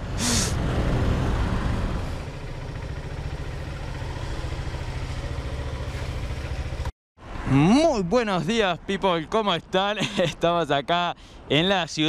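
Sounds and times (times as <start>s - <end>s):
traffic noise: 0.0s - 12.0s
motorcycle engine puttering: 2.2s - 6.9s.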